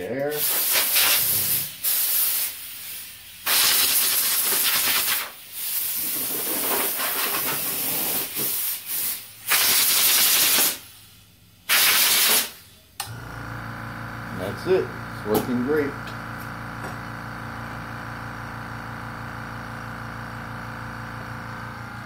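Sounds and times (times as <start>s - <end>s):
air blow gun hissing: 0.3s - 11.1s, 11.7s - 12.7s.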